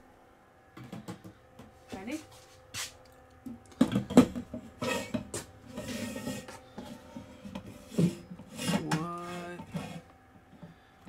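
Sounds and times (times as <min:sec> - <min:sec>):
metal rod scraping on brackets: 0:04.8 - 0:10.0.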